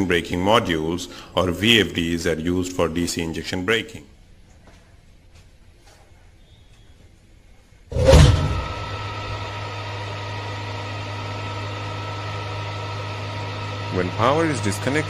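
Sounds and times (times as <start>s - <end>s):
electric motor starting and humming: 7.9s - 15.0s.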